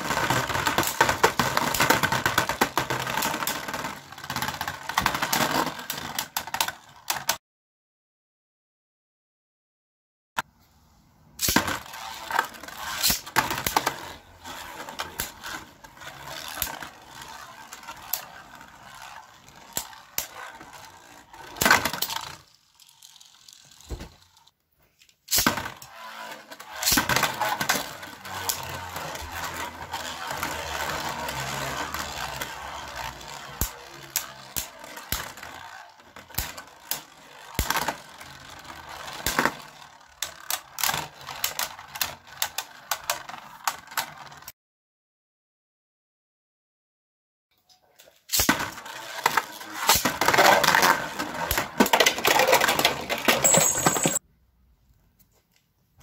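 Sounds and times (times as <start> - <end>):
spinning tops scraping whir: 0.0 - 7.3, 11.4 - 24.6, 25.3 - 44.5, 48.3 - 54.2
spinning tops clacking: 49.2 - 54.2.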